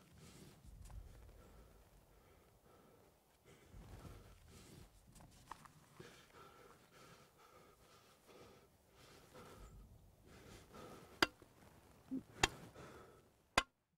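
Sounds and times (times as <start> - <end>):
man sobbing softly: 12.1 - 12.4.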